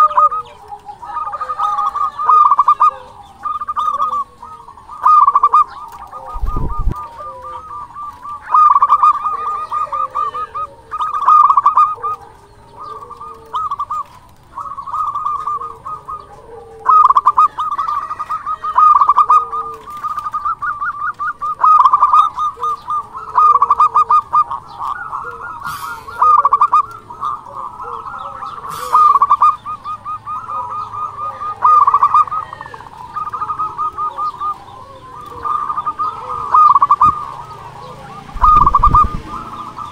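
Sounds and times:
dove cooing: 0.0s - 39.9s.

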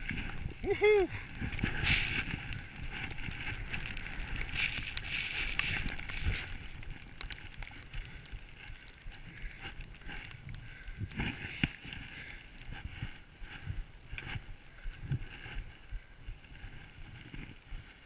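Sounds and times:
skis hissing through powder snow: 0.0s - 7.6s
wind buffeting microphone: 0.0s - 11.6s.

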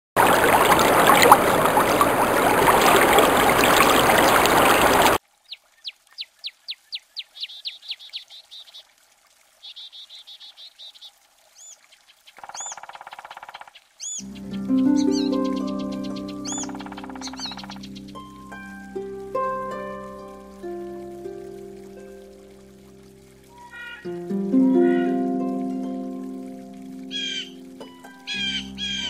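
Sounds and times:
rushing splashing water: 0.2s - 29.0s
birds chirping and trilling: 1.7s - 8.9s, 9.6s - 20.6s, 23.4s - 25.2s, 27.0s - 29.0s.

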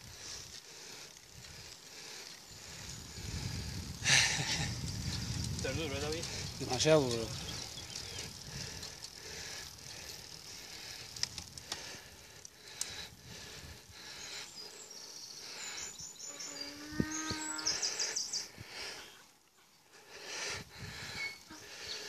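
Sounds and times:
wind noise: 2.4s - 12.0s, 16.8s - 17.8s, 20.5s - 21.5s
cow mooing: 16.5s - 17.7s.

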